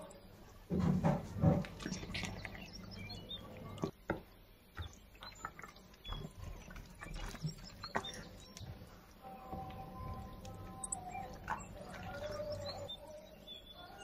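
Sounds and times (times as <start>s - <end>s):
gloved hands squelching marinade: 1.6s - 3.8s, 4.8s - 12.9s.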